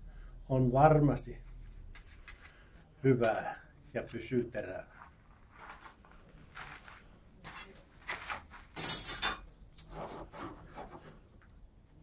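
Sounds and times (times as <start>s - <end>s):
steel bar clinking and scraping: 8.8s - 9.5s.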